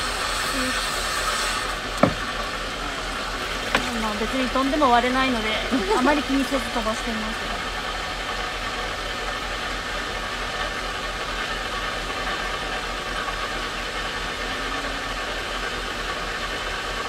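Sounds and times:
steady hiss of wet disc: 0:00.0 - 0:10.7
motor hum: 0:00.0 - 0:17.0.

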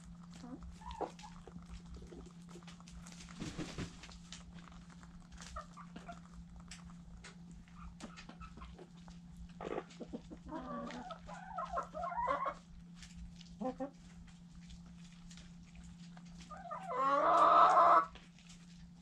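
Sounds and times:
beaks ticking on ground: 0:00.0 - 0:03.1, 0:04.2 - 0:12.6
steady low hum: 0:00.0 - 0:19.0
hens clucking and calling: 0:00.3 - 0:02.3, 0:07.8 - 0:12.6, 0:13.6 - 0:14.0, 0:16.4 - 0:18.1.

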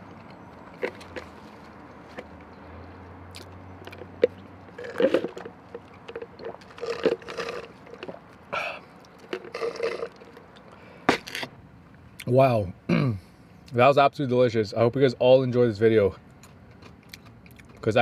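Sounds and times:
swallowing: 0:03.3 - 0:10.8
sipping through a straw: 0:04.8 - 0:05.5, 0:06.4 - 0:08.7, 0:09.3 - 0:10.3.

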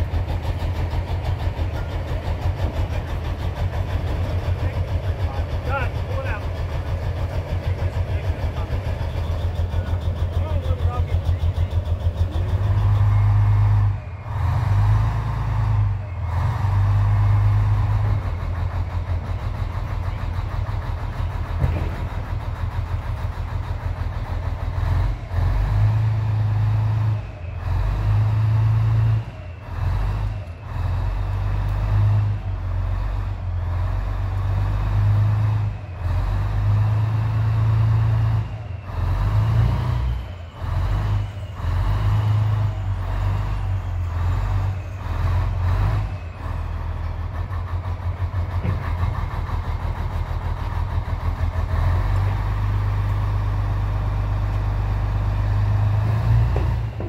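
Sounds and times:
diesel engine running under load: 0:00.0 - 0:57.0.

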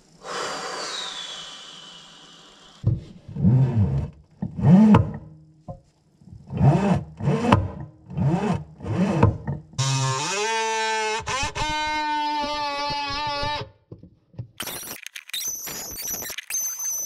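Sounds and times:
rushing noise with falling whistle: 0:00.3 - 0:02.8.

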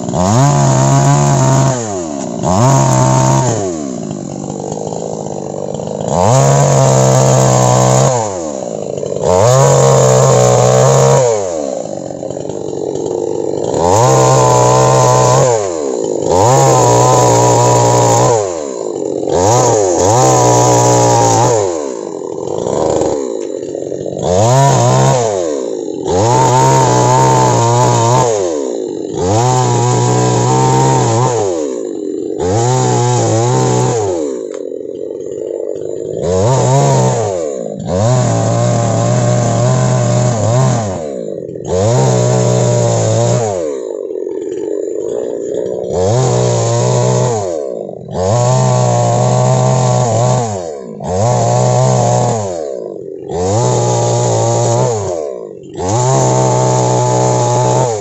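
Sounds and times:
chainsaw revving and cutting: 0:00.0 - 0:58.0.

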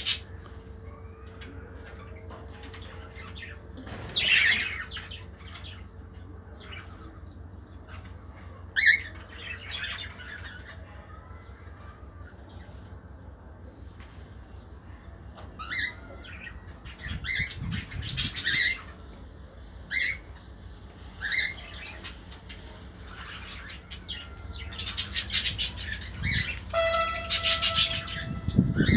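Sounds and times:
budgerigars squawking: 0:24.8 - 0:28.9
whistled bird note: 0:26.2 - 0:28.9.

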